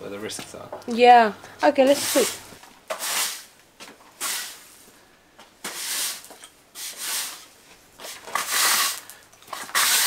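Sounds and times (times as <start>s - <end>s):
push broom scraping on stone: 1.8s - 3.5s, 4.1s - 4.7s, 5.6s - 10.0s.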